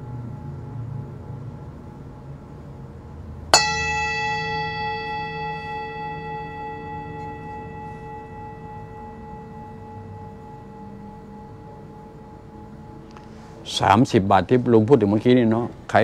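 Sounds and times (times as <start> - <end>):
metal bowl ringing: 3.5 - 14.2.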